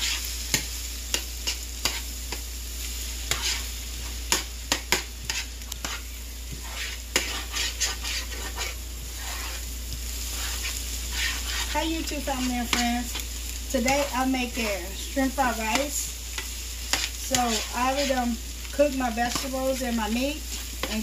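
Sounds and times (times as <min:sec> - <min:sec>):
utensil scraping a pan: 0:00.0 - 0:02.1, 0:03.2 - 0:13.3, 0:15.7 - 0:18.4
food sizzling in a skillet: 0:00.0 - 0:21.0.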